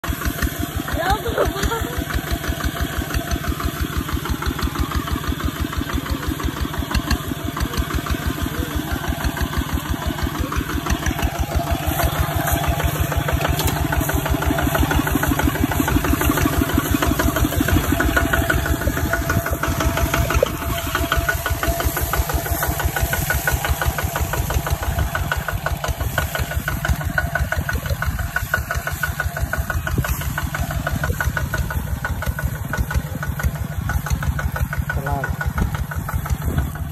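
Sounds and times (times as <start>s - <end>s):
diesel engine running: 0.0s - 36.9s.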